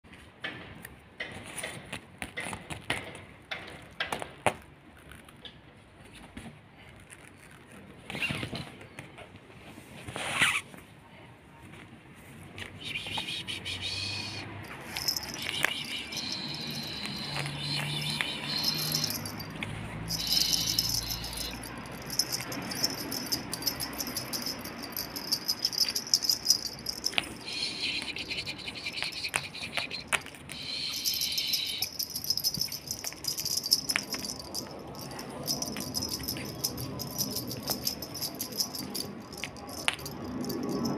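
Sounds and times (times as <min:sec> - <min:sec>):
jingling and rattling: 0:14.0 - 0:40.9
high chiming tones: 0:14.1 - 0:40.9.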